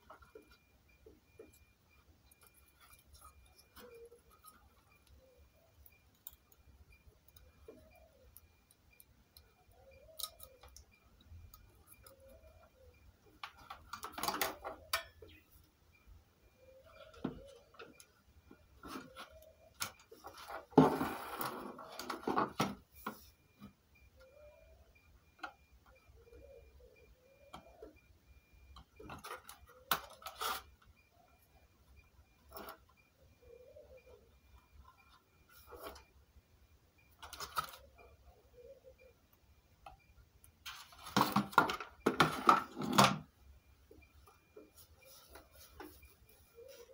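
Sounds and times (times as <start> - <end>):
faint fast regular ticking: 0.0 - 13.7.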